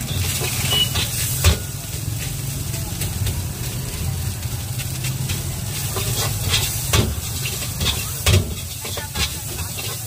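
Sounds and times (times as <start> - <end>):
ladle scraping a metal wok: 0.0 - 2.3, 4.9 - 10.0
gas burner rumble and hiss: 0.0 - 10.0
ladle clanking on wok: 5.0 - 10.0.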